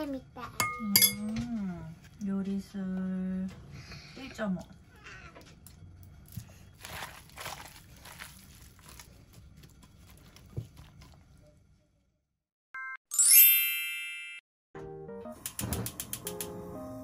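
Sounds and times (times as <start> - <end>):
faint kitchen room noise: 0.0 - 12.3
light background music: 14.8 - 17.0.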